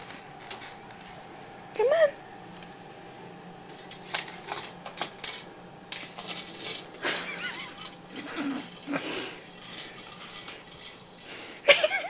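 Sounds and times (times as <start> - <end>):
plastic toy clattering on tile floor: 4.1 - 9.0.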